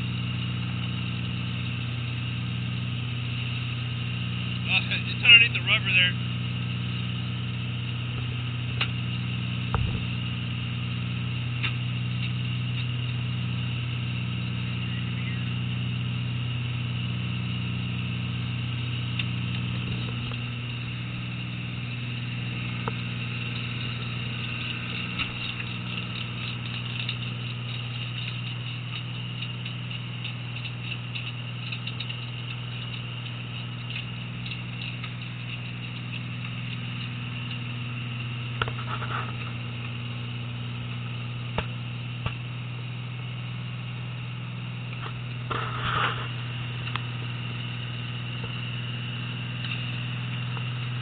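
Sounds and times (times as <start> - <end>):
boat engine drone: 0.0 - 51.0
faint clatter: 7.8 - 10.4, 18.6 - 42.5, 44.8 - 51.0.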